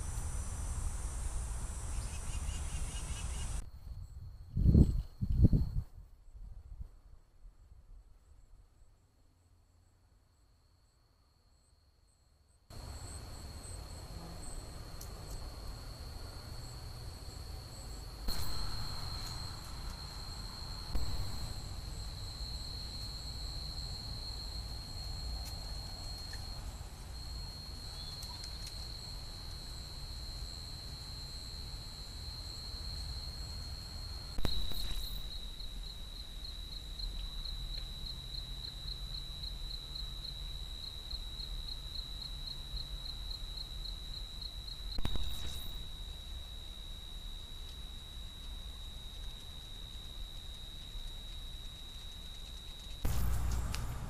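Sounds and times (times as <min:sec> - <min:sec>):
night insects trilling: 0:00.0 - 0:03.6, 0:11.6 - 0:54.0
low hiss: 0:00.0 - 0:08.0, 0:12.7 - 0:39.1, 0:52.8 - 0:54.0.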